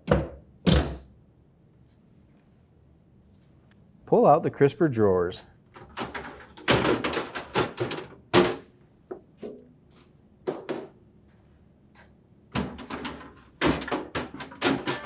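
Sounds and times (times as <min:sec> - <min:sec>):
plastic drawers knocking and rattling: 0:05.8 - 0:08.7, 0:12.5 - 0:15.0.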